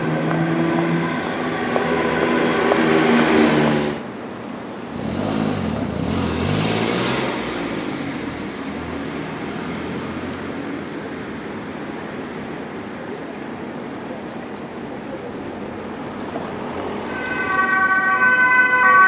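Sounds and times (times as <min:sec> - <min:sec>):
city traffic noise: 0:00.0 - 0:19.0
vehicle engine passing by: 0:04.9 - 0:10.4.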